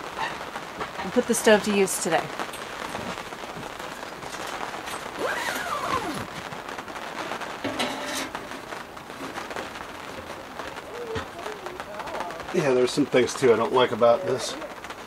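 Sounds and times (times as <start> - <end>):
rain patter: 0.0 - 15.0
handling scrape: 7.6 - 9.4.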